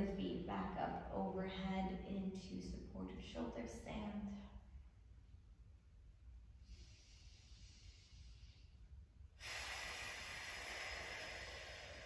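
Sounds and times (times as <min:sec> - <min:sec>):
person breathing deeply: 0:06.6 - 0:12.0.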